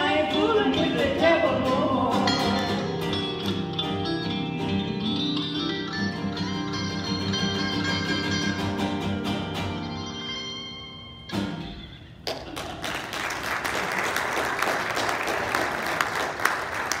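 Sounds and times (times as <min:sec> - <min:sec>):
guitars ringing chord: 0:02.1 - 0:12.2
audience applause: 0:12.3 - 0:17.0.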